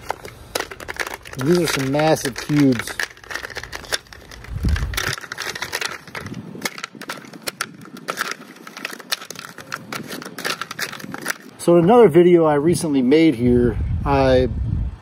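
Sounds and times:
ice cubes cracking and clinking: 0.0 - 11.5.

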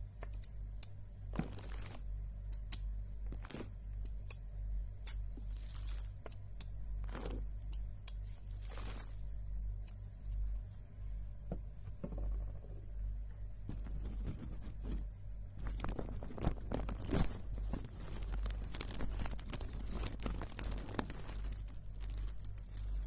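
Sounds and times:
low steady hum: 0.0 - 23.0
plastic packaging crinkling: 15.6 - 23.0.

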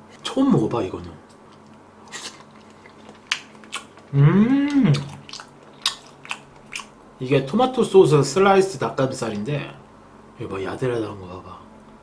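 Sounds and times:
person chewing with wet smacks: 1.3 - 7.0
person humming mmm: 4.1 - 5.4.

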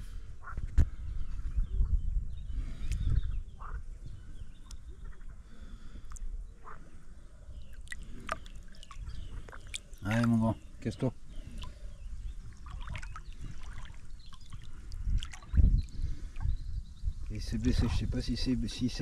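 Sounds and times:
shallow water stirring: 7.6 - 16.5.

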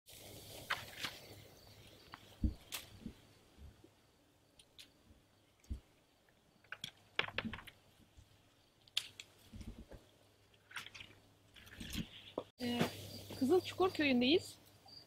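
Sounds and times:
branches and leaves rustling: 0.1 - 14.8
fruit stems snapping: 2.5 - 3.0, 8.9 - 9.4.

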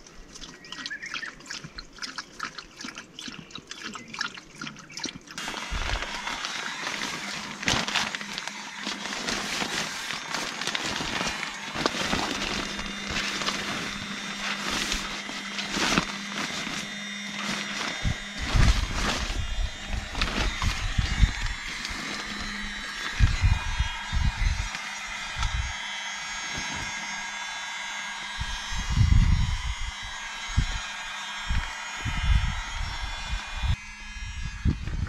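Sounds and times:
sleeping bag rustling: 5.4 - 23.3.

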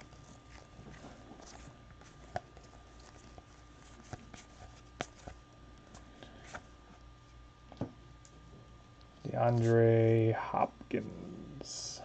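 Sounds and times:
faint room hum: 0.0 - 12.0.

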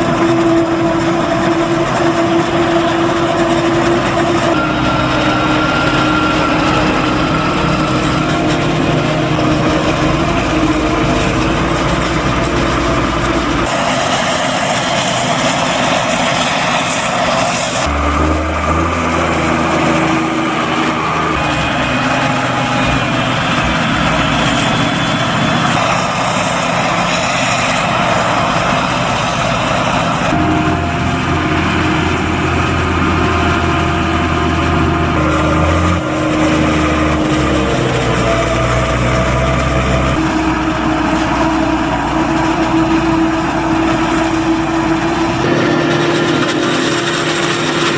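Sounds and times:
tractor engines: 0.0 - 47.9
forage harvester chopping: 43.6 - 47.9.

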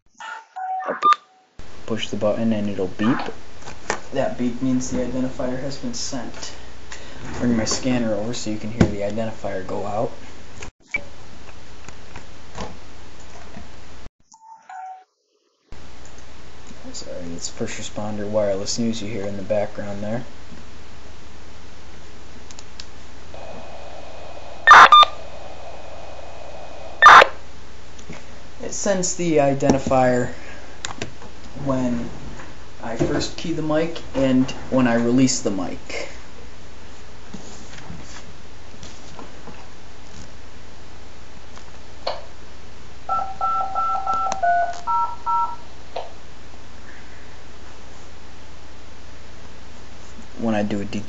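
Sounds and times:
dual-tone beeps: 0.2 - 1.4, 14.3 - 15.1, 24.7 - 25.2, 27.0 - 27.3
buzzy radio data chirp: 23.3 - 27.5
radio channel hiss: 23.3 - 27.5
radio click: 24.7 - 25.1, 27.0 - 27.3.

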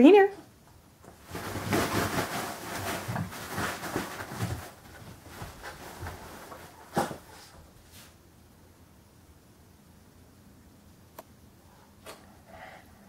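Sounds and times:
rustling of cloth and filling: 0.9 - 8.3
thuds of paws: 1.0 - 8.0
dog scrabbling on bean bag: 1.0 - 8.2.

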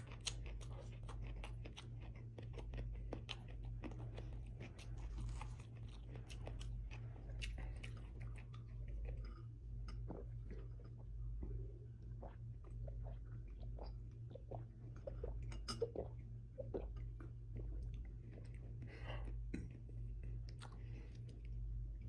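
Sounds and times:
low hum: 0.0 - 22.0
person gulping and swallowing: 6.2 - 20.8.

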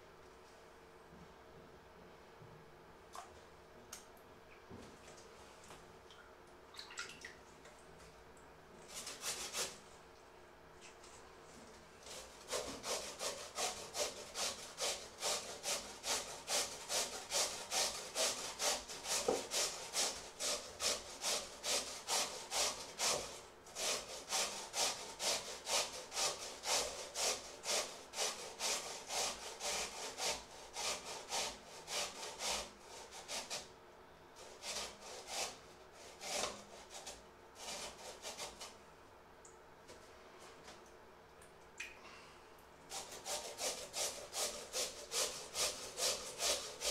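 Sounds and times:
potato grated on metal grater: 8.9 - 9.8, 12.0 - 33.7, 34.4 - 38.8, 42.9 - 46.9.

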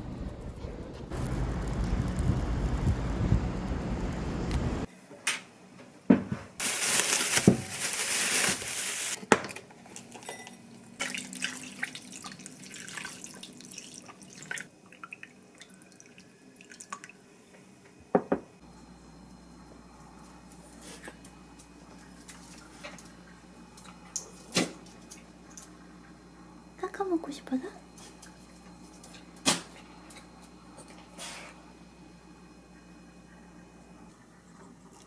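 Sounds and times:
wind buffeting microphone: 0.0 - 4.9
kitchenware clinking: 9.3 - 11.2
water running: 9.8 - 17.3.

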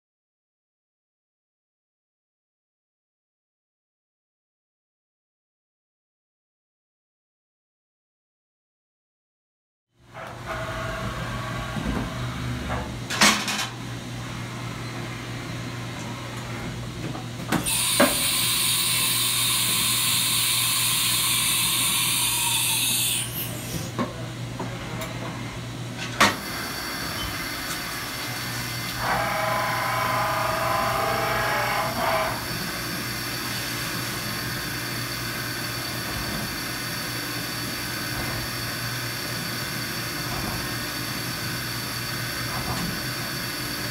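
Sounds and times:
high machine whine: 17.6 - 23.8
machine whirr: 17.6 - 24.0, 26.2 - 43.9
loud air hiss: 17.7 - 23.6.

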